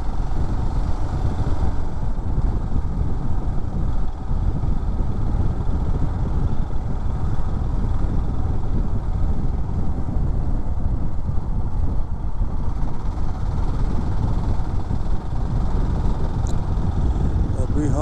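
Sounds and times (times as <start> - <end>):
motorcycle engine and road rumble: 0.0 - 18.0
wind buffeting microphone: 0.0 - 18.0.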